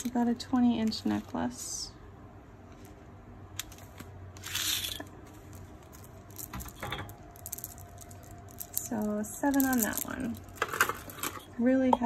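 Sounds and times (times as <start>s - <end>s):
beads clicking: 4.4s - 11.4s.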